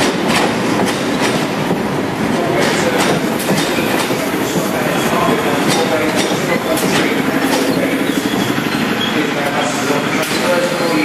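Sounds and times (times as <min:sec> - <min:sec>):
train rumbling and slowing: 0:00.0 - 0:11.0
wheels clicking over rail joints: 0:02.5 - 0:08.6.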